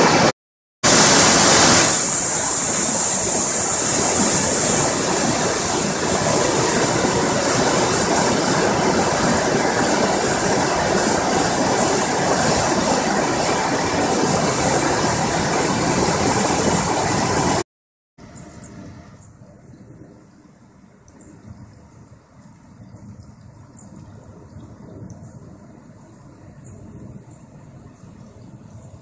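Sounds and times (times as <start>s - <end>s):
river rushing: 0.9s - 17.6s.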